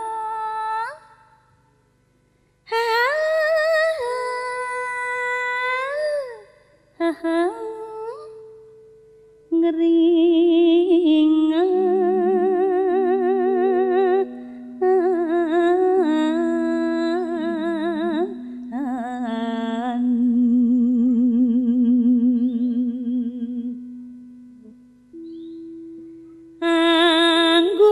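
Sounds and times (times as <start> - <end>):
woman singing with vibrato: 0.0 - 1.4, 2.7 - 8.8, 9.5 - 25.3, 26.6 - 27.9
low sustained accompaniment notes: 7.2 - 27.9.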